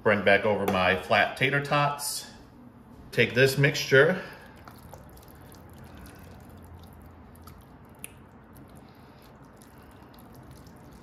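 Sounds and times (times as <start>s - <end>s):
wet squishing food mixture: 3.6s - 11.0s.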